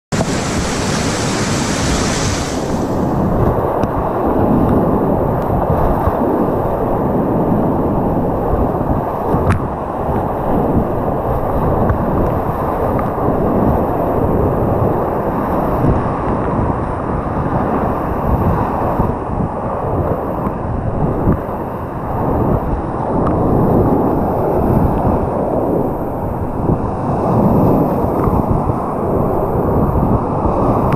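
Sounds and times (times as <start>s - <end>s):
whitewater river rushing: 0.1s - 4.4s.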